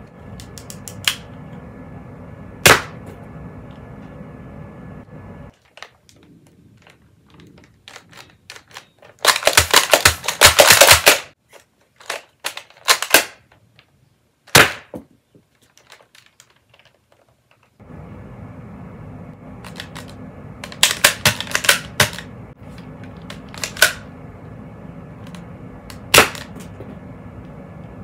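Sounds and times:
toy pistol plastic clicks: 0:07.9 - 0:11.3, 0:12.0 - 0:13.5.

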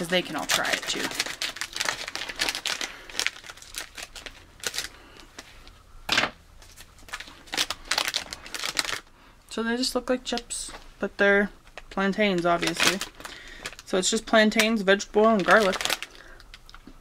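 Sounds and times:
foil snack bag crinkling: 0:00.0 - 0:05.8, 0:06.6 - 0:09.1, 0:11.6 - 0:16.9.

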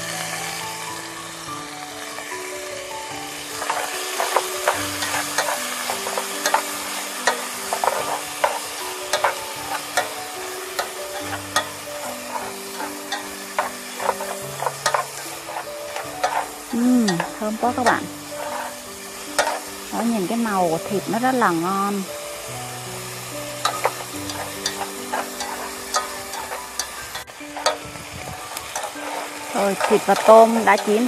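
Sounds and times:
meat sizzling in oil: 0:00.0 - 0:31.0
chopsticks clicking against pot: 0:03.7 - 0:10.2, 0:10.8 - 0:18.0, 0:28.5 - 0:31.0.

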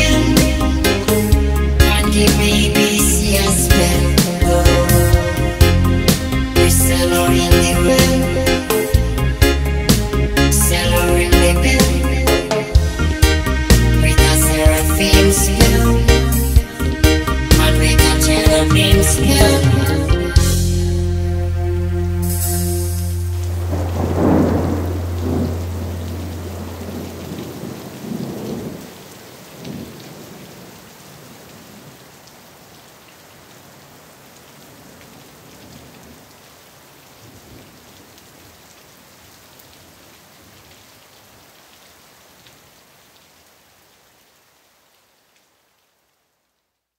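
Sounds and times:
steady rain hiss: 0:00.0 - 0:46.9
deep held tone: 0:21.0 - 0:27.0
thunder rolling: 0:23.4 - 0:30.4.

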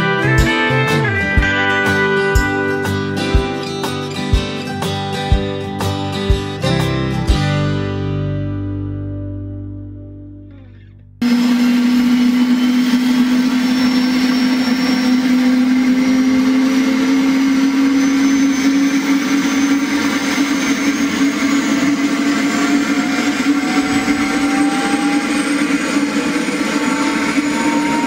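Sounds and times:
small motor buzzing whine: 0:11.2 - 0:28.0.

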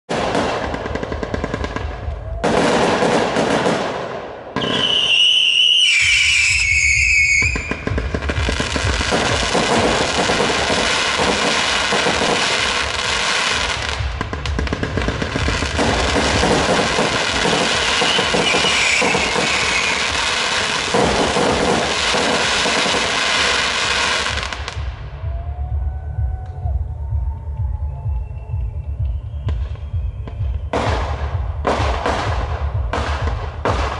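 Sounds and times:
fireworks crackling: 0:00.1 - 0:25.0
falling firework whistle: 0:04.6 - 0:13.8, 0:15.7 - 0:31.2.

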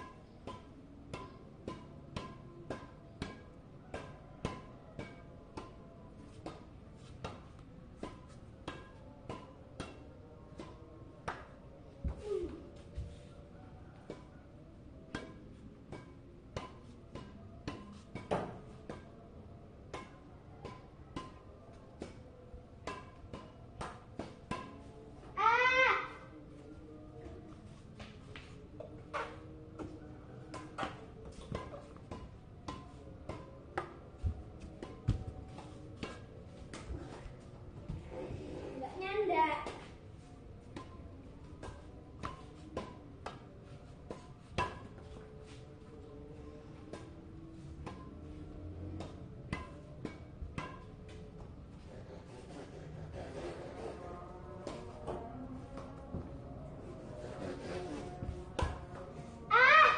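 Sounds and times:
racket tapping shuttlecock: 0:00.0 - 0:12.6, 0:15.1 - 0:19.2, 0:19.8 - 0:22.2, 0:22.8 - 0:25.9, 0:27.5 - 0:37.4, 0:40.6 - 0:46.0, 0:46.8 - 0:47.2, 0:47.8 - 0:54.0.

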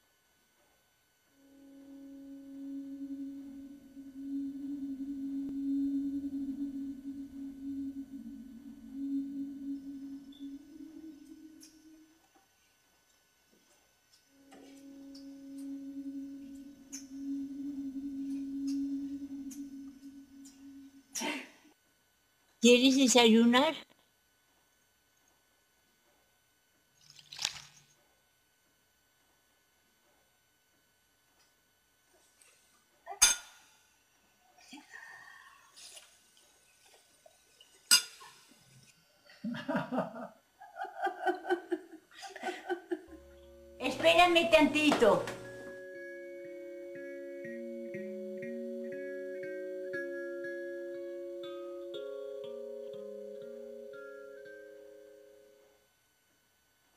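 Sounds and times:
steady low tone: 0:01.2 - 0:12.6, 0:14.1 - 0:21.7, 0:42.4 - 0:56.0
soft laughter: 0:39.4 - 0:43.2.

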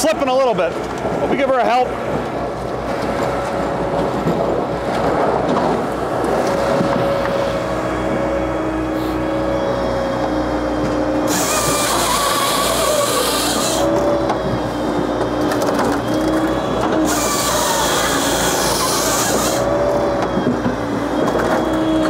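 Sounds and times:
machine drone with whines: 0:00.0 - 0:22.0.

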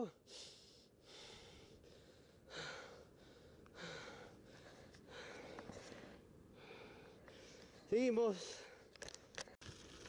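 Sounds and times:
person breathing hard: 0:00.2 - 0:07.9.

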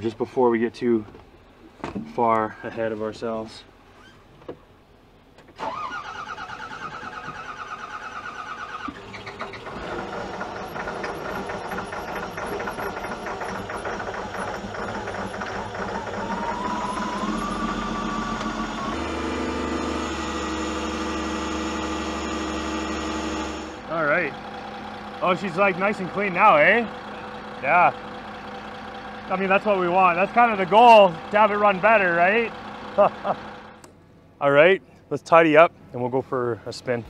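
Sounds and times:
diesel engine starter cranking: 0:05.4 - 0:33.8
diesel engine running: 0:05.6 - 0:34.3
rising whine: 0:09.8 - 0:24.3.

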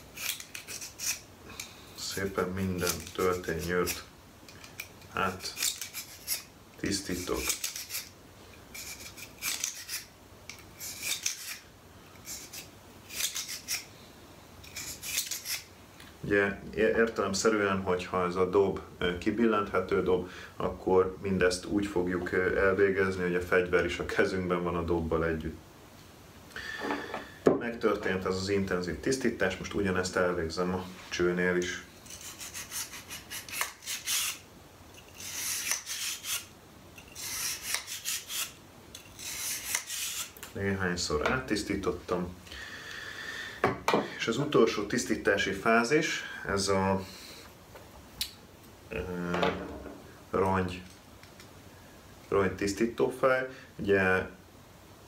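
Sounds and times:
bore brush scraping in cylinder: 0:02.0 - 0:08.1.

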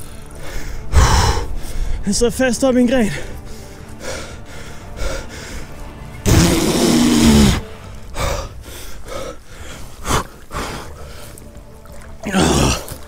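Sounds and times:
man breathing heavily: 0:00.3 - 0:02.0, 0:03.1 - 0:06.1, 0:07.2 - 0:11.7.

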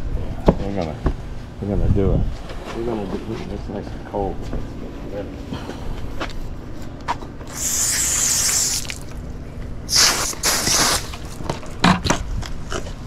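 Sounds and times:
hose nozzle spraying water: 0:07.5 - 0:09.1, 0:09.9 - 0:11.2.

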